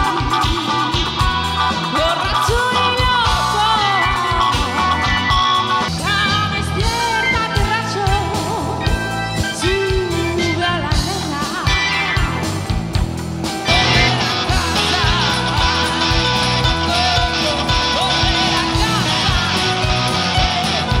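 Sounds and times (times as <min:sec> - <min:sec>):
woman singing: 0:00.0 - 0:01.2, 0:01.9 - 0:12.2, 0:13.7 - 0:20.6
bass line: 0:00.0 - 0:21.0
drums: 0:00.0 - 0:21.0
electric guitar: 0:00.0 - 0:21.0
keyboard: 0:00.0 - 0:21.0.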